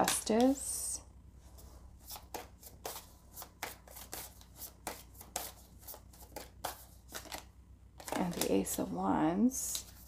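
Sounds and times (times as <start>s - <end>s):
cards shuffling: 2.0s - 8.9s.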